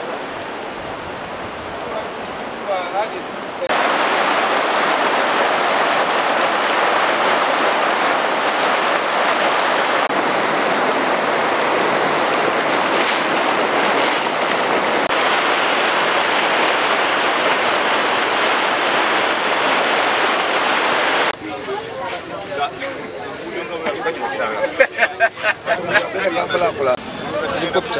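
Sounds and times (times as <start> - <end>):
floodwater rushing: 0.0 - 21.9.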